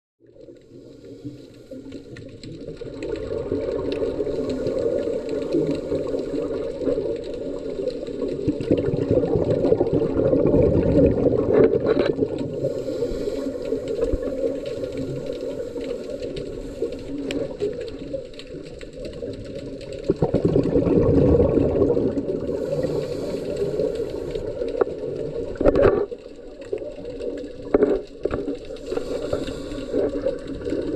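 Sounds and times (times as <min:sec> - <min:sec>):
diver's bubbles gurgling underwater: 0:00.2 - 0:30.9
faint clicks: 0:00.4 - 0:09.5, 0:11.5 - 0:20.4, 0:22.1 - 0:30.9.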